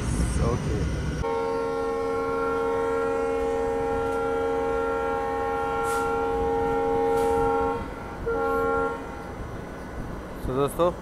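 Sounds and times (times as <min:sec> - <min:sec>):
diesel locomotive horn blasts: 0:01.2 - 0:09.4.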